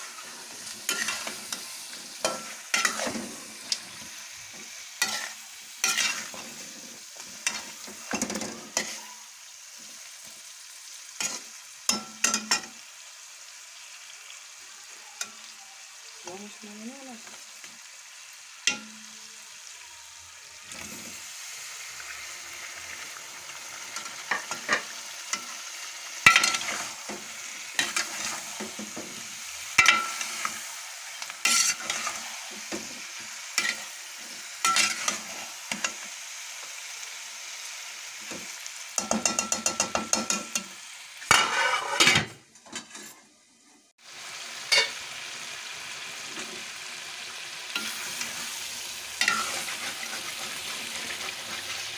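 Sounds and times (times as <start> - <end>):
chicken sizzling in a pot: 0.0 - 51.9
spatula scraping metal pot: 31.4 - 32.7, 41.3 - 42.2, 49.2 - 51.9.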